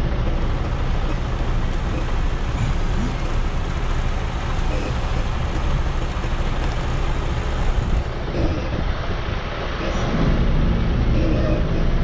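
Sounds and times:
truck diesel engine rumbling: 0.0 - 12.0.

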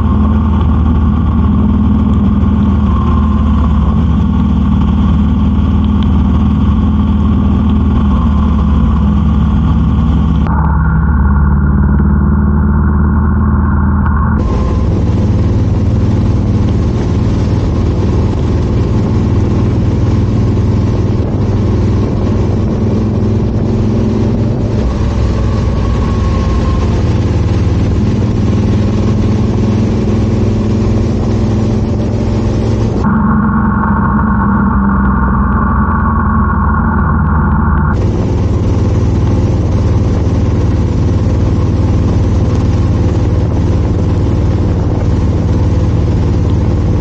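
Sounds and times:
motorcycle engine running: 0.0 - 47.0
rain and wet road spray hiss: 14.4 - 33.0, 38.0 - 47.0.

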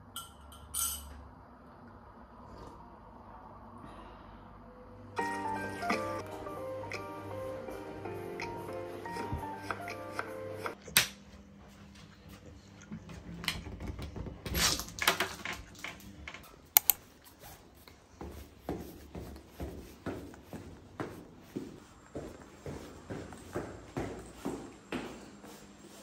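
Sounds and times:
footsteps: 17.3 - 26.0.

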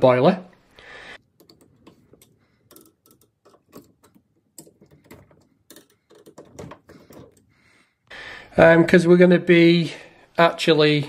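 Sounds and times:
screwdriver turning metal valves: 1.3 - 7.5
small metallic clicks and scrapes: 1.4 - 7.5.

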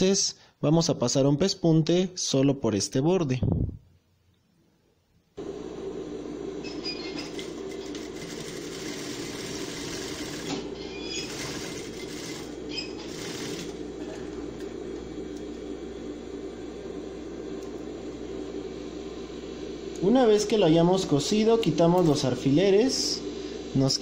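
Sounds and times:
sewing machine stitching: 6.8 - 14.4.

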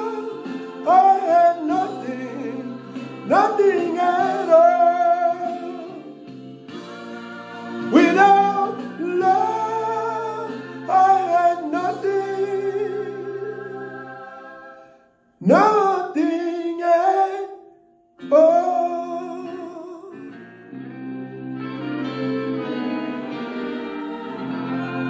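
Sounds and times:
man singing into microphone: 0.0 - 6.1, 7.9 - 13.8, 15.4 - 20.4
backing music chords: 0.0 - 14.8, 20.6 - 25.0.

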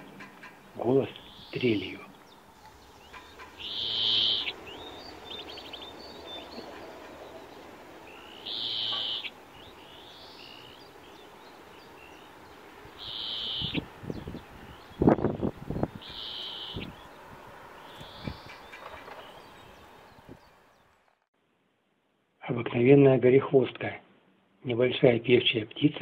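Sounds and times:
bird trill: 0.0 - 12.4, 13.0 - 15.2, 15.8 - 17.2, 17.8 - 21.0
finch calling: 0.0 - 15.1, 15.8 - 20.8.

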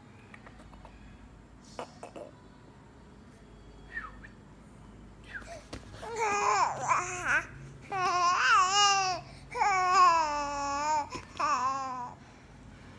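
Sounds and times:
baby babbling and cooing: 5.5 - 12.2.

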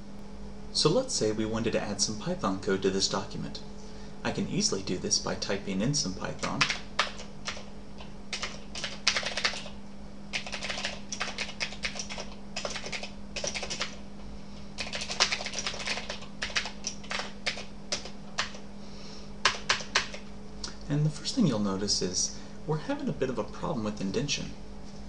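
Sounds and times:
steady low hum: 0.0 - 25.0
typing on computer keyboard: 6.4 - 7.7, 8.3 - 14.0, 14.8 - 18.6, 19.4 - 20.2.

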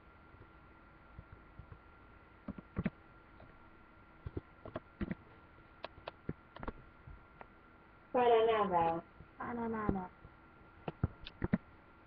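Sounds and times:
keyboard key clicks: 10.9 - 11.6.

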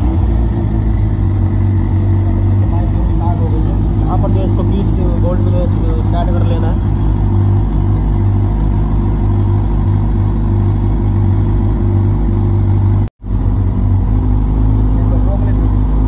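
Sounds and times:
motorcycle engine idling: 0.0 - 16.0.

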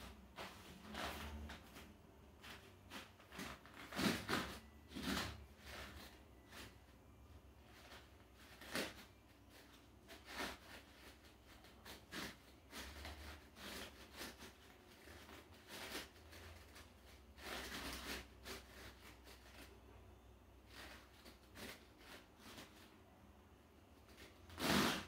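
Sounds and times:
soft rustles: 0.0 - 19.9
low room hum: 0.0 - 25.0.

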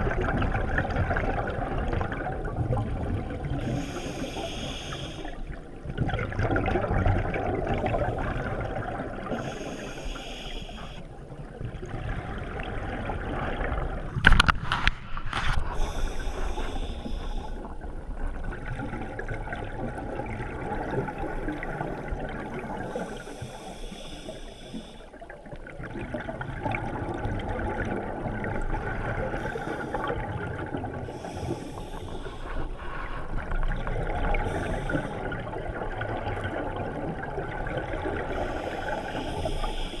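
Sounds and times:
exhaled air bubbling underwater: 0.0 - 40.0
regulator hiss on inhalation: 3.7 - 5.4, 9.4 - 11.0, 15.8 - 17.6, 22.9 - 25.0, 38.4 - 40.0.

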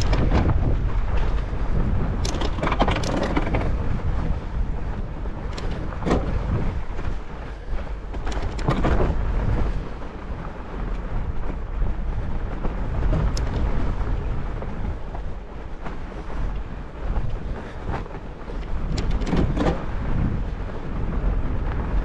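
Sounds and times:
bike clicks and knocks: 0.0 - 1.6, 2.2 - 3.8, 5.5 - 6.6, 8.1 - 9.2, 13.0 - 13.7, 16.5 - 19.8
wind on microphone: 0.0 - 22.0.

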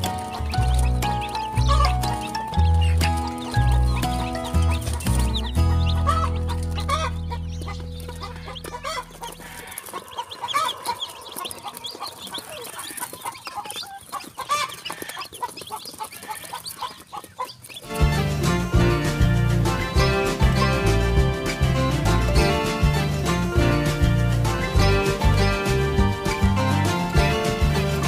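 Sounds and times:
background music: 0.0 - 11.1, 17.8 - 28.0
chicks peeping: 0.0 - 28.0.

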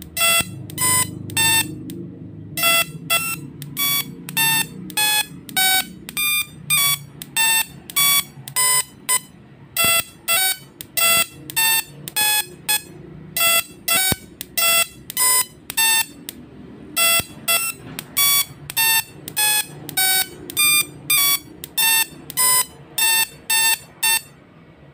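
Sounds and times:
tesla coil buzzy melody: 0.0 - 16.4.

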